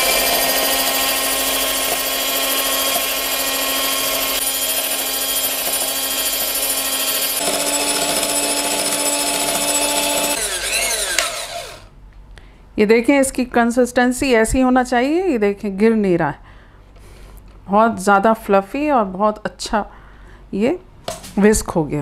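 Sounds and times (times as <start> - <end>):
electric hand mixer whining: 0.0 - 11.9.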